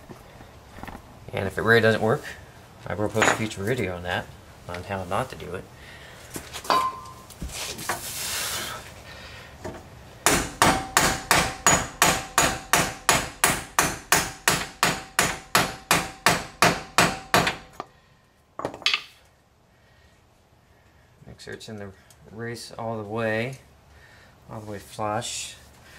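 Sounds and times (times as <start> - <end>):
faint metallic ring: 6.7 - 7.3.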